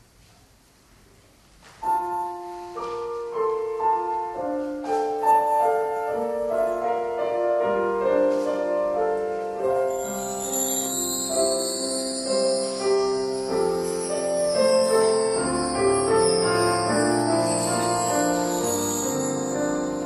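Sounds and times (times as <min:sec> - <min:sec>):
piano: 0:00.0 - 0:20.0.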